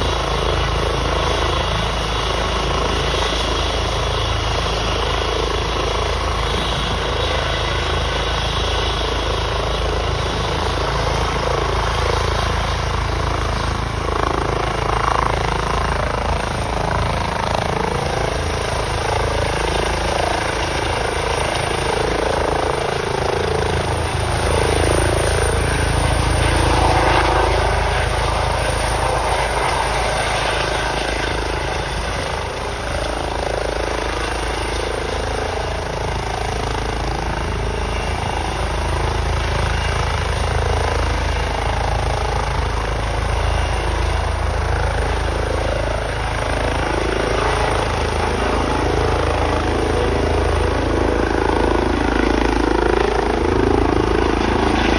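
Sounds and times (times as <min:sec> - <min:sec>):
helicopter rotor and engines: 0:00.0 - 0:54.9.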